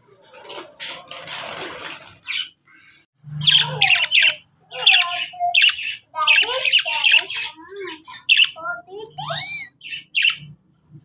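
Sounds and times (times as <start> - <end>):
rustling and scraping: 0.0 - 2.2
budgerigars squawking and chattering: 2.2 - 10.6.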